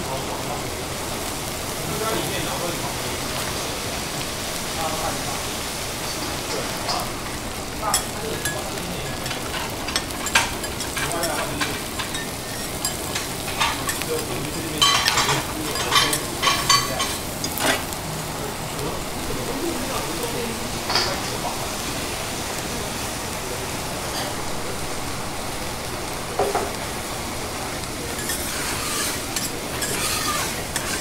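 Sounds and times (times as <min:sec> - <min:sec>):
food sizzling on griddle: 0:00.0 - 0:31.0
metal spatulas scraping plate: 0:28.2 - 0:31.0.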